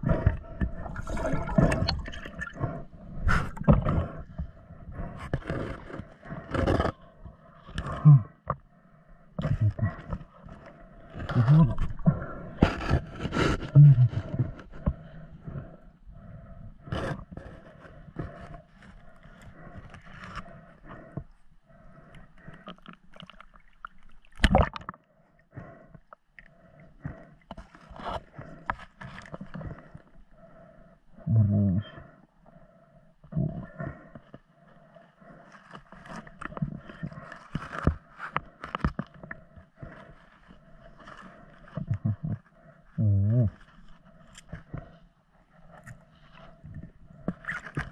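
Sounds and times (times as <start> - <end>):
muffled underwater rushing water: 0.0 - 5.1
underwater knocks and scrapes: 0.0 - 8.6, 9.3 - 15.8, 16.8 - 21.4, 25.6 - 30.2, 35.2 - 42.5, 43.6 - 47.9
knocks and scrapes: 9.4 - 15.0.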